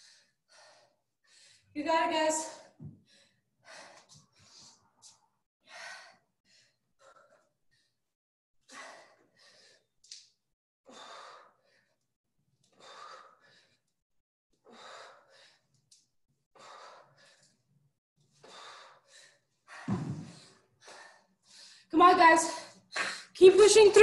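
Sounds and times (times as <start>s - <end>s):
heavy rhythmic breathing: 0.0s - 14.0s, 14.6s - 23.4s
thump: 19.9s - 20.4s.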